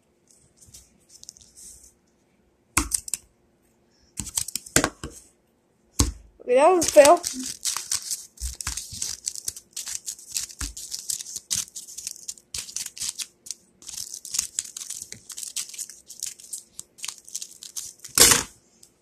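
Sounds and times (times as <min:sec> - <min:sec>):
paper rustling: 0:06.8 - 0:18.5
scissors snipping paper: 0:06.8 - 0:18.5.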